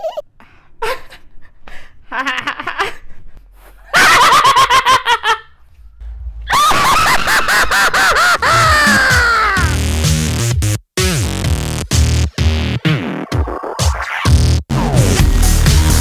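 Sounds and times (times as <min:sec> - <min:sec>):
people doing evil laughs: 0:03.8 - 0:05.6, 0:06.5 - 0:09.8.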